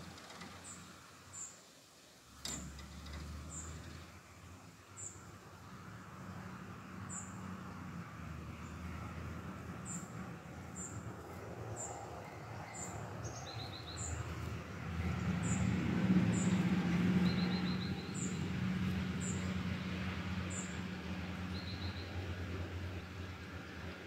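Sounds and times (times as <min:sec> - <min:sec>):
bird chirping: 0:11.7 - 0:19.5, 0:20.5 - 0:22.2.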